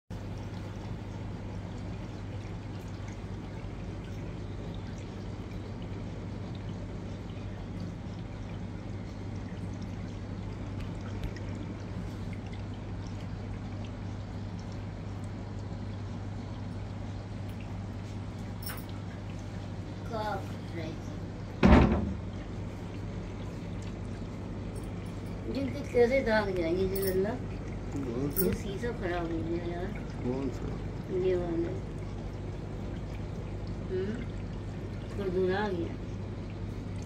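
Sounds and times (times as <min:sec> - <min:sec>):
faint water drips: 0:00.1 - 0:21.6, 0:22.2 - 0:37.0
low filter hum: 0:00.1 - 0:37.0
water trickling and pouring: 0:00.1 - 0:37.0.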